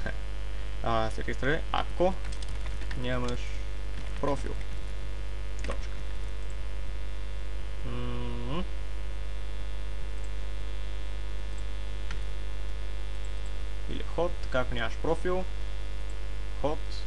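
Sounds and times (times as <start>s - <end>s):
electrical mains hum: 0.0s - 17.0s
man's voiced mm: 7.8s - 8.8s.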